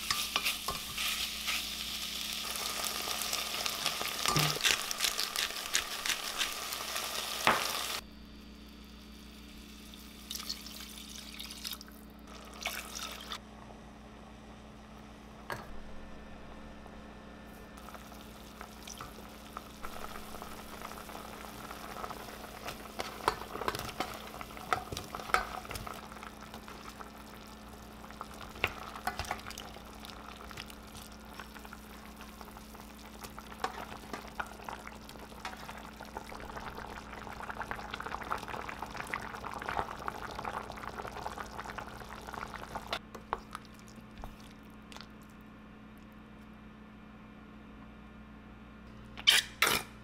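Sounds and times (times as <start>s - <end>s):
steady low hum: 8.0s - 10.4s, 13.4s - 49.2s
stew bubbling in a pot: 17.8s - 45.4s.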